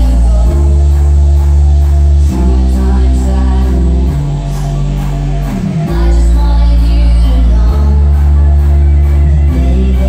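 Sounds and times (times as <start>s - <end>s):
loud music with heavy bass: 0.0s - 10.0s.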